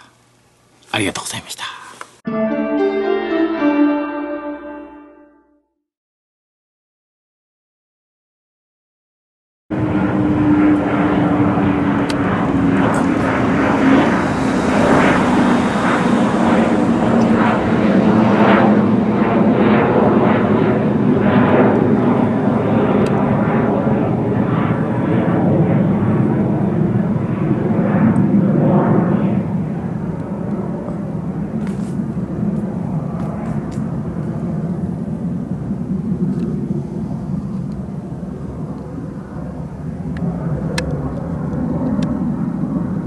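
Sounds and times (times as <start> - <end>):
fighter jet roaring overhead: 9.7 - 43.0.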